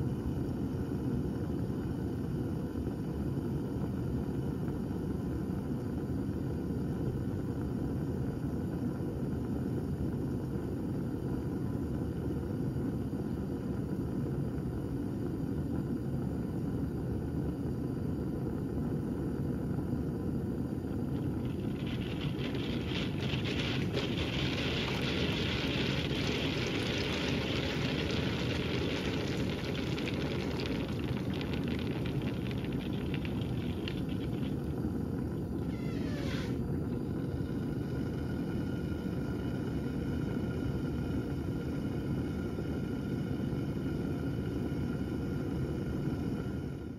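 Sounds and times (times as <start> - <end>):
water boiling in flask: 0.0 - 46.9
steady low rumble: 17.6 - 35.8.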